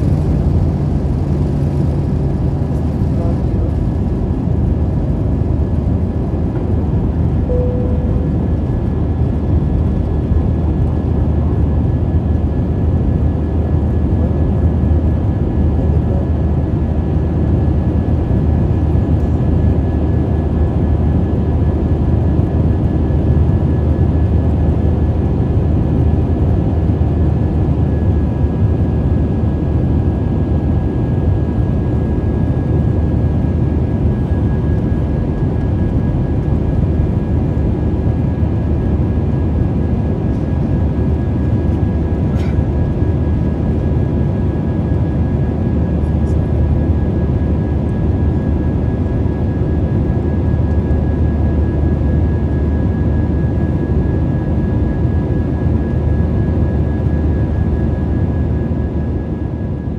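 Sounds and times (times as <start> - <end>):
jet engines and airflow rumbling: 0.0 - 59.9
faint high whine: 7.4 - 8.7.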